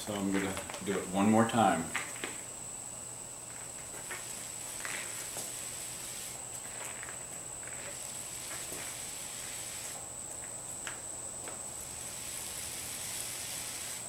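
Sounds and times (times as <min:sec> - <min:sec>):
steady high whine: 0:00.0 - 0:14.0
paint roller rustling hiss: 0:03.6 - 0:10.0, 0:11.6 - 0:14.0.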